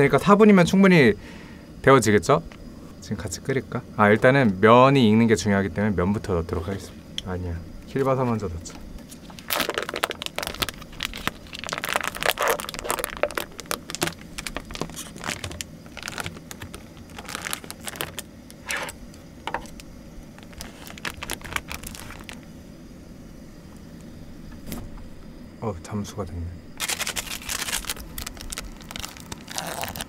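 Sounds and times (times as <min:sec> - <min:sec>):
plastic wrapper crinkling: 0:09.1 - 0:22.5, 0:26.8 - 0:30.0.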